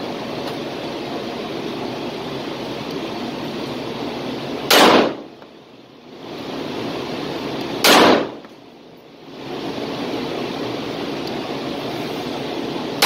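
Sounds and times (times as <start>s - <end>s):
steady hiss: 0.0s - 13.0s
pistol shots: 4.7s - 5.3s, 7.8s - 8.4s.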